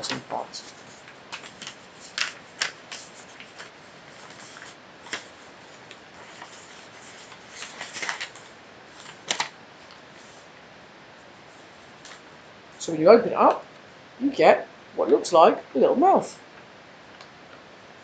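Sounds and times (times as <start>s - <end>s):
paper rustling and crinkling: 0.0s - 10.5s, 11.5s - 12.3s.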